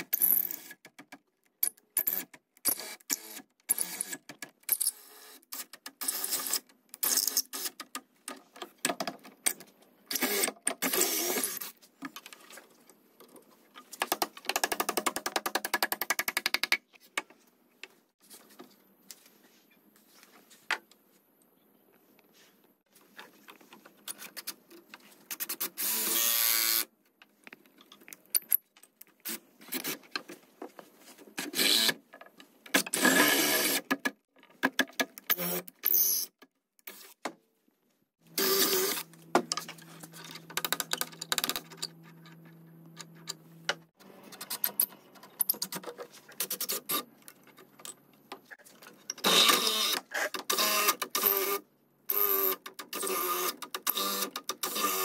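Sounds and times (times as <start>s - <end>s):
cordless drill boring into wood: 10.1s - 11.7s, 25.8s - 26.8s, 33.0s - 33.8s, 38.4s - 39.1s, 49.2s - 55.0s.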